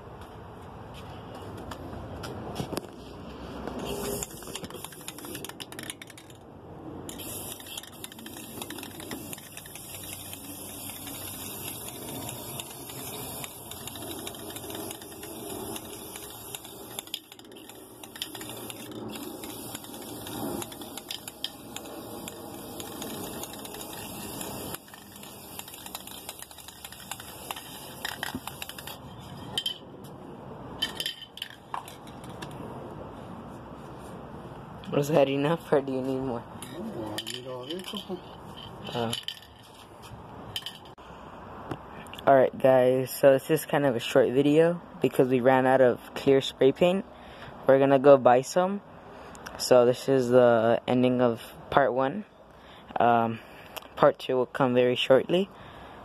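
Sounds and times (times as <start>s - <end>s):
aerosol can spraying: 3.8s - 5.8s, 7.1s - 29.0s.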